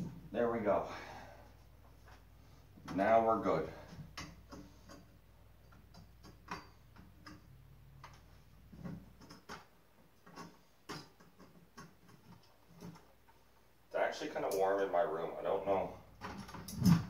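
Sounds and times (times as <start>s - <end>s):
clicks and taps on metal frame: 3.9s - 13.4s.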